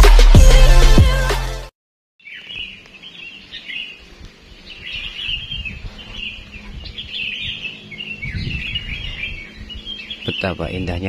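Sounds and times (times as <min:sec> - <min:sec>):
songbirds chirping in chorus: 0:02.2 - 0:11.0
low microphone rumble: 0:05.2 - 0:10.2.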